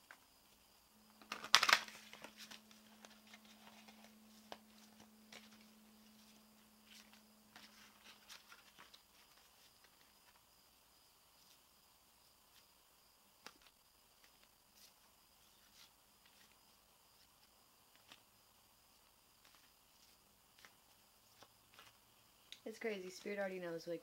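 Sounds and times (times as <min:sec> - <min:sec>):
cards shuffling: 0:01.1 - 0:10.4, 0:13.4 - 0:16.6, 0:17.9 - 0:18.2, 0:19.0 - 0:22.6
faint steady low tone: 0:02.2 - 0:08.0.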